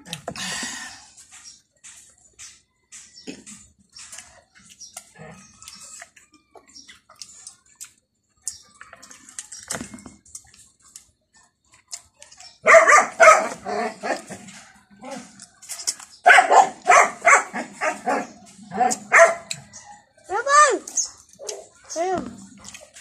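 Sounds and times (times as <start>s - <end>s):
eating clicks and lip smacks: 3.0s - 12.6s
dog barking sharply: 12.6s - 13.6s, 16.3s - 18.2s, 19.1s - 19.5s.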